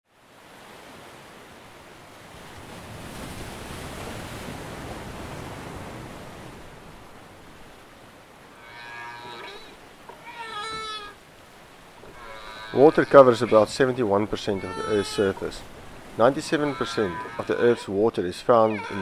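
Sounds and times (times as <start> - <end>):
ocean surf rushing: 0.2 - 19.0
whale calls: 8.5 - 19.0.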